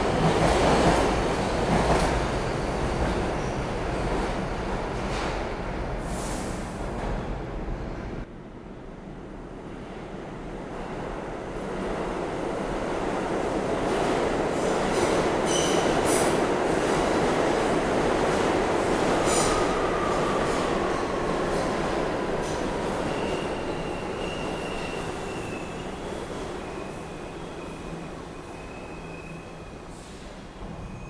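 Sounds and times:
train wheels rumbling on rail: 0:00.0 - 0:08.2.

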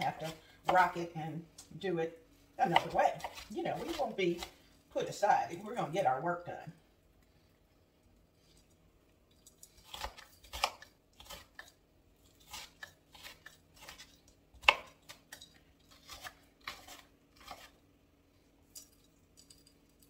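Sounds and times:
knife chopping on a cutting board: 0:02.6 - 0:04.5, 0:09.9 - 0:11.7, 0:12.4 - 0:15.4.

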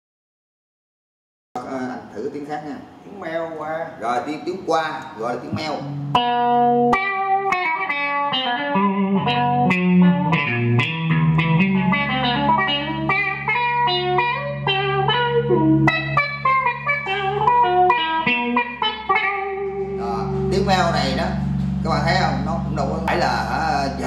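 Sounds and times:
electric guitar with auto-wah: 0:05.5 - 0:24.0.

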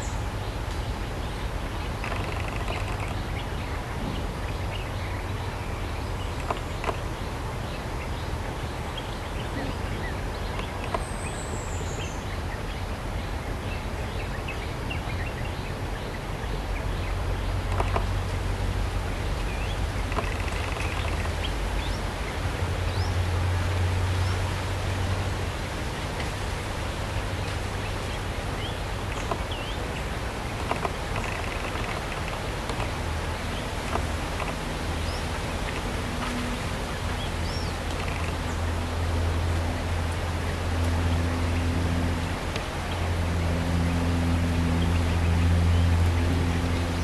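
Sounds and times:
rushing background noise: 0:00.0 - 0:47.0
bird chirps: 0:01.9 - 0:05.0, 0:19.6 - 0:22.0, 0:30.6 - 0:32.9, 0:37.1 - 0:38.6.

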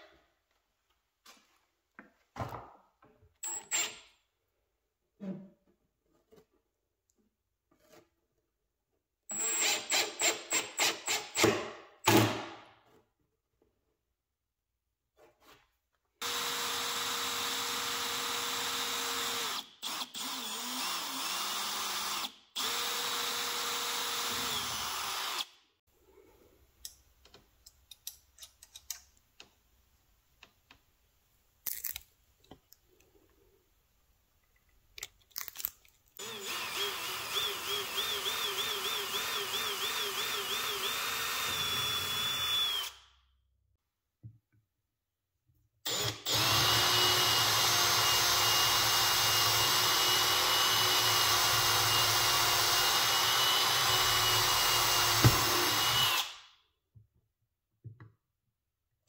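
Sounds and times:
power drill running: 0:03.4 - 0:03.9, 0:09.3 - 0:11.4, 0:16.2 - 0:25.5, 0:36.2 - 0:43.0, 0:45.9 - 0:56.5.

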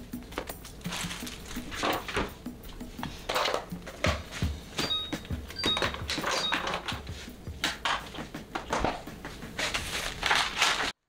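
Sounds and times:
plastic bags crinkling: 0:00.7 - 0:02.1, 0:09.6 - 0:11.0
items knocking on counter: 0:03.3 - 0:10.5.

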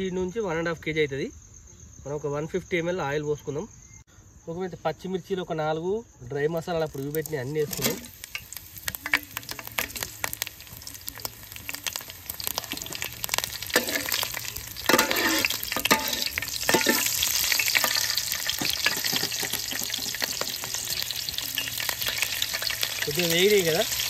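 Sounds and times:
spices sizzling in hot oil: 0:06.3 - 0:24.0
metal ladle stirring pot: 0:06.9 - 0:20.8.

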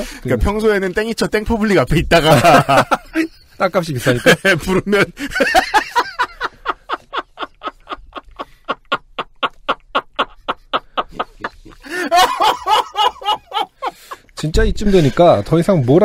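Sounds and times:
person laughing hard: 0:04.2 - 0:14.3.

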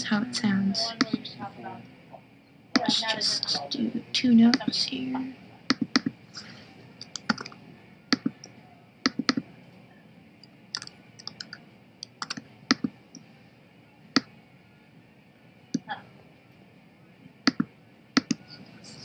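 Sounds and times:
mouse and keyboard clicks: 0:07.0 - 0:08.5, 0:10.7 - 0:12.9.

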